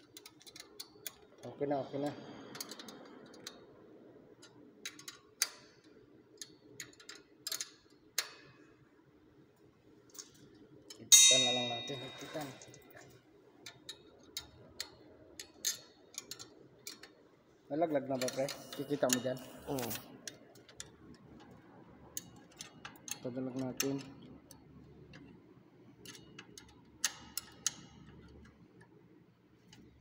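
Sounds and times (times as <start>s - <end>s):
loud ringing metal clang: 11.1s - 12.6s
metallic clicks of hand tools: 26.0s - 28.5s.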